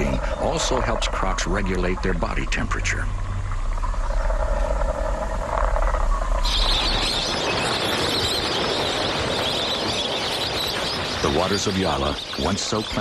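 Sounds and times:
low rumble: 0:00.0 - 0:09.9.

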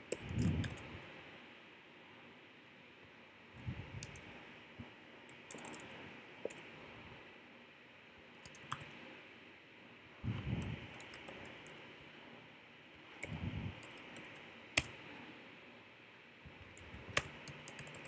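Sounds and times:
low steady hiss: 0:00.0 - 0:18.0
keyboard and mouse clicks: 0:00.1 - 0:00.9, 0:04.0 - 0:04.3, 0:05.3 - 0:06.7, 0:08.4 - 0:09.0, 0:10.4 - 0:11.9, 0:13.2 - 0:15.0, 0:16.6 - 0:18.0.

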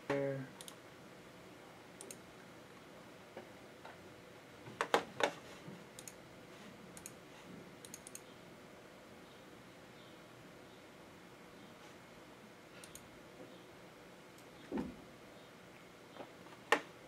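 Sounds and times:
computer mouse clicking: 0:00.6 - 0:00.8, 0:02.0 - 0:02.2, 0:06.0 - 0:06.2, 0:07.0 - 0:07.2, 0:07.8 - 0:08.3, 0:12.8 - 0:13.1.

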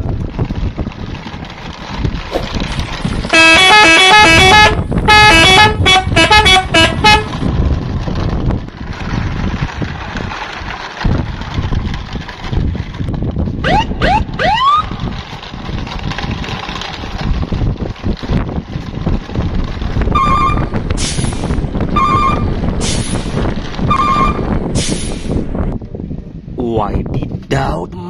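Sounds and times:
low engine rumble: 0:00.0 - 0:28.0
beep: 0:23.9 - 0:24.4
short hiss: 0:24.8 - 0:25.4.

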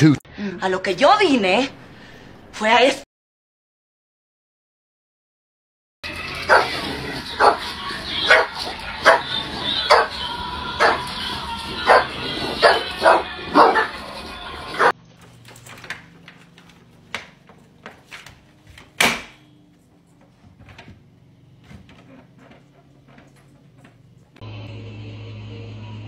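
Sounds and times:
dog barking: 0:06.4 - 0:10.2, 0:10.8 - 0:11.2, 0:11.8 - 0:14.0, 0:14.7 - 0:15.0.

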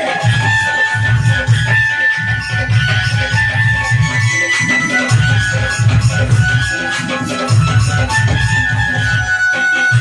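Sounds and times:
jingling percussion: 0:00.0 - 0:10.0.

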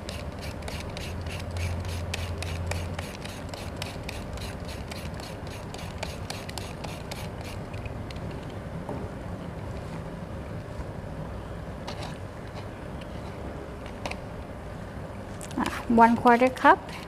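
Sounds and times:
peeler scraping carrot: 0:00.0 - 0:07.6.

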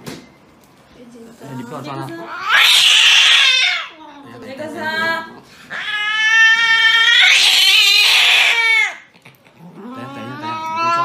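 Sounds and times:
cat yowling: 0:02.2 - 0:04.0, 0:05.7 - 0:09.1, 0:09.8 - 0:11.0.

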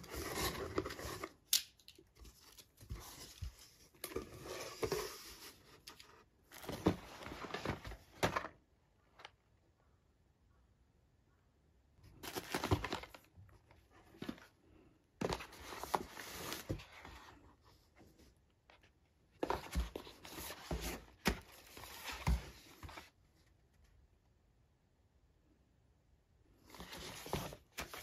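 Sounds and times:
packaging rustling and crinkling: 0:12.1 - 0:13.3.

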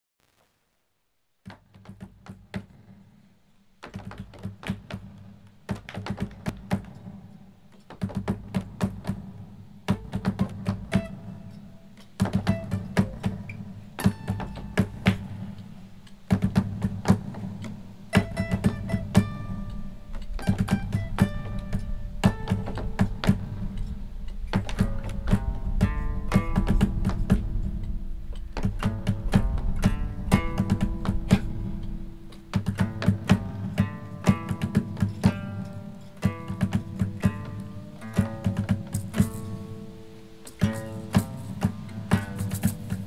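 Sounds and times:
percussive guitar thumps and taps: 0:01.4 - 0:03.1, 0:03.8 - 0:43.0
acoustic guitars playing folk music: 0:08.2 - 0:43.0
plucked guitar notes: 0:09.9 - 0:43.0.

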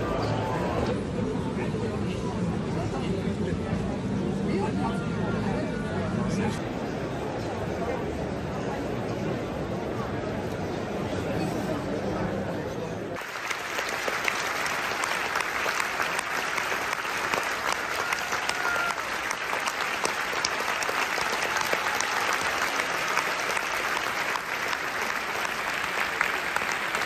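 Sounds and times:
audience applauding: 0:13.2 - 0:27.0.

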